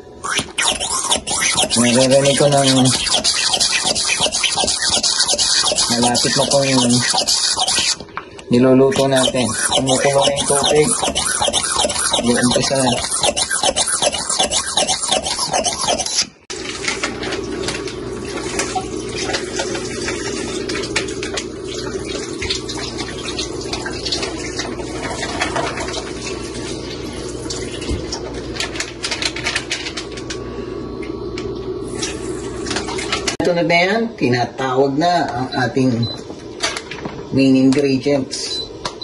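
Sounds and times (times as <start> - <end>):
immersion circulator whirring: 0.0 - 39.0
hand vacuum pump sucking air: 0.2 - 8.1, 8.9 - 16.4.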